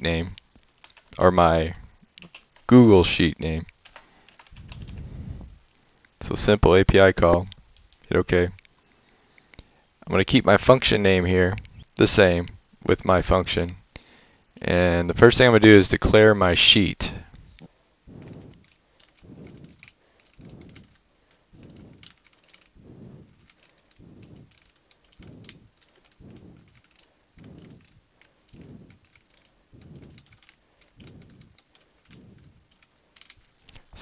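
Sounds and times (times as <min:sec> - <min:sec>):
typing on computer keyboard: 0:18.2 - 0:33.4.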